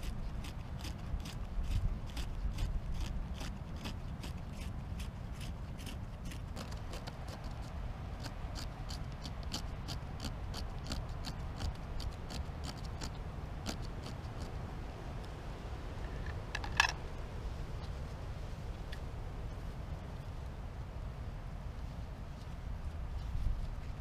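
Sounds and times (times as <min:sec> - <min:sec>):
knife scraping wooden stick: 0:00.0 - 0:14.5.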